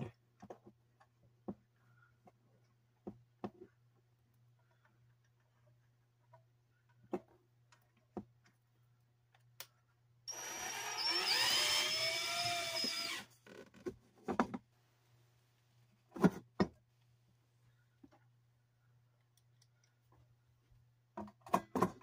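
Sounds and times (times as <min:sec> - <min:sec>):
cordless drill whining: 0:10.3 - 0:13.7.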